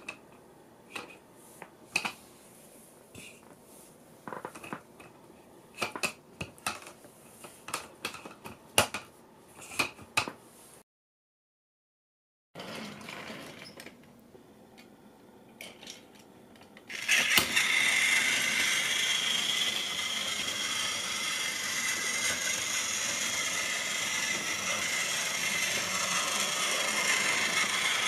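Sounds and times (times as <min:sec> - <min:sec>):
plastic toy track pieces clicking: 0:16.9 - 0:28.0.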